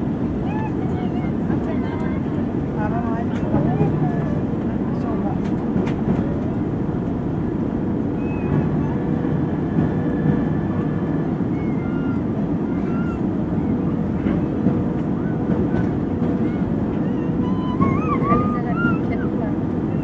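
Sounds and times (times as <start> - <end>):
jet engines and airflow rumble: 0.0 - 20.0.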